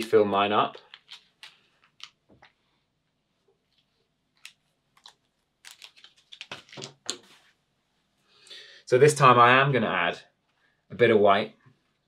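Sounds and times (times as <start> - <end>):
painting supplies clicking and tapping: 0.7 - 2.6, 3.7 - 7.4.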